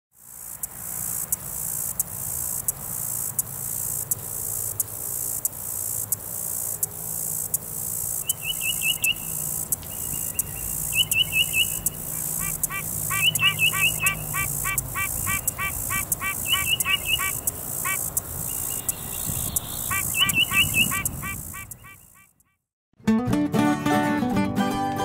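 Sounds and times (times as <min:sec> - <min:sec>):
insect buzzing: 0:00.2 - 0:22.5
bird chirping high notes: 0:08.2 - 0:22.5.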